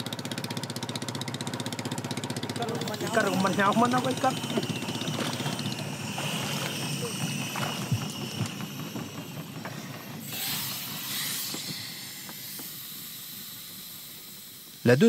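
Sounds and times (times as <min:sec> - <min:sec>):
low engine hum: 0:00.0 - 0:15.0
air hissing from diving mask: 0:04.3 - 0:15.0.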